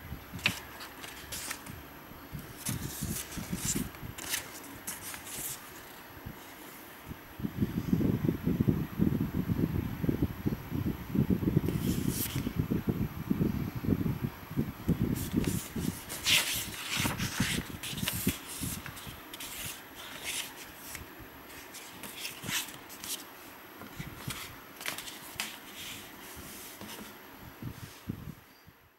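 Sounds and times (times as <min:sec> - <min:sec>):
paper pages rustling: 0:00.4 - 0:01.8, 0:02.4 - 0:06.8, 0:11.7 - 0:12.5, 0:15.2 - 0:27.2.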